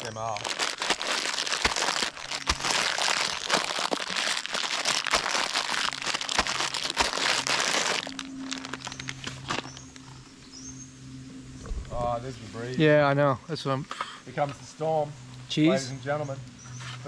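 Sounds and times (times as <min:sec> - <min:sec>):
snack packet crinkling: 0:00.0 - 0:10.0
crunchy food being crunched: 0:00.0 - 0:10.1.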